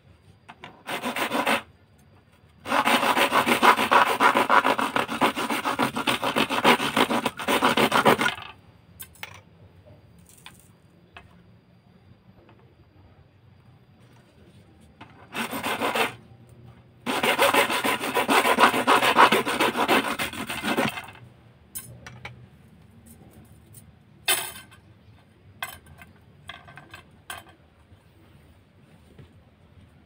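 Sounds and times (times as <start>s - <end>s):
hacksaw sawing rod: 0.8s - 1.6s, 2.6s - 8.4s, 15.3s - 16.2s, 17.1s - 21.2s.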